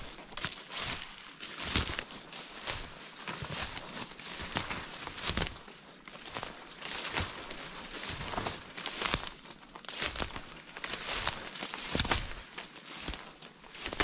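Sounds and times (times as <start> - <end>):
footsteps crunching through dry leaves: 0.0 - 14.0.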